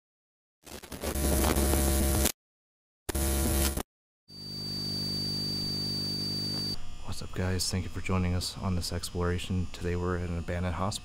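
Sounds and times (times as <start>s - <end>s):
buzzing static-like noise: 0.6s - 2.3s, 3.1s - 11.0s
thin high whine: 3.1s - 11.0s
electrical mains hum: 4.4s - 11.0s.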